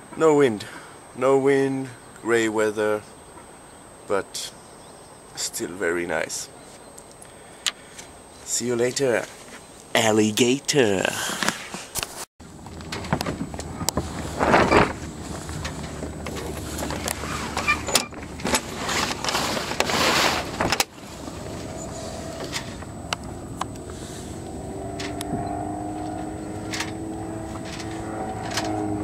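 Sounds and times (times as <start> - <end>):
propeller plane engine droning: 12.4 - 29.0
wind noise on microphone: 12.4 - 29.0.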